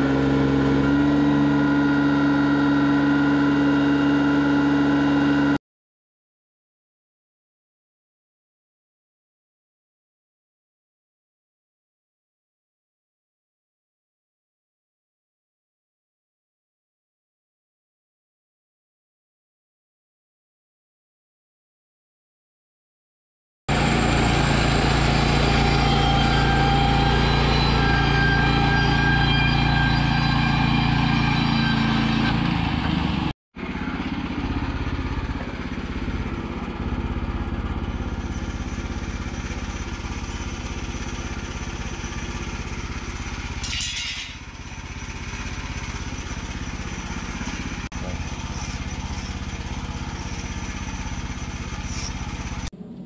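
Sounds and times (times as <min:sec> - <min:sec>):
sawmill engine running under load: 0:00.0 - 0:05.6, 0:23.7 - 0:53.0
quiet engine hum: 0:44.2 - 0:53.0.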